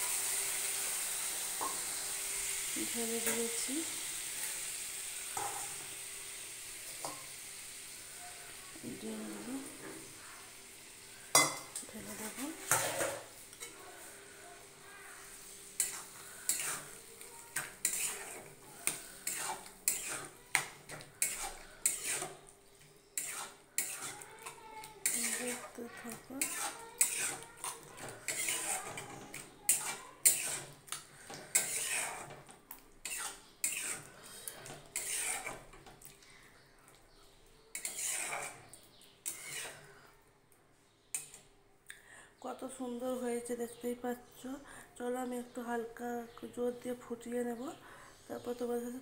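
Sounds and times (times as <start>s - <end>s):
spatula scraping metal pan: 11.2s - 14.1s, 15.3s - 22.5s, 23.1s - 35.8s, 37.7s - 40.1s.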